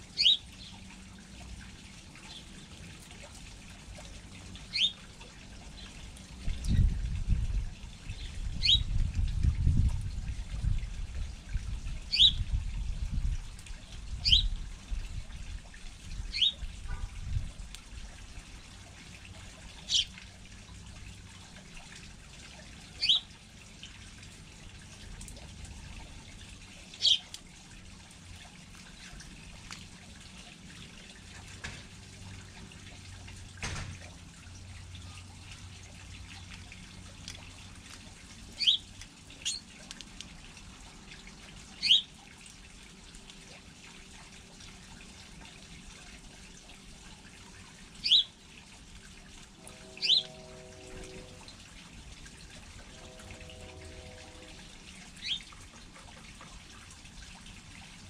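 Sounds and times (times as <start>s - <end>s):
sparrows chirping: 0.2s - 0.8s, 4.7s - 5.1s, 8.1s - 8.9s, 12.1s - 12.4s, 14.2s - 14.5s, 16.3s - 16.6s, 19.8s - 20.1s, 23.0s - 23.3s, 27.0s - 27.3s, 38.6s - 39.6s, 41.8s - 42.1s, 48.0s - 48.3s, 50.0s - 50.4s, 55.2s - 55.5s
wind rumble on microphone: 6.3s - 18.4s.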